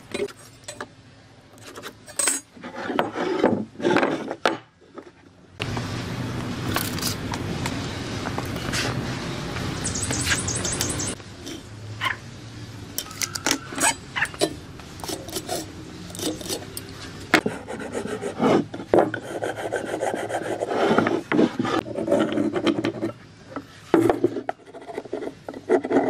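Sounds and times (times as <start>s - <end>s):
hand tools scraping on wood: 2.6s - 4.4s, 17.4s - 26.0s.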